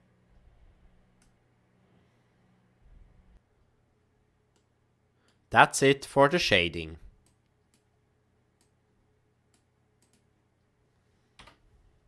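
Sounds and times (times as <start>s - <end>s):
computer mouse clicks: 9.5s - 10.3s.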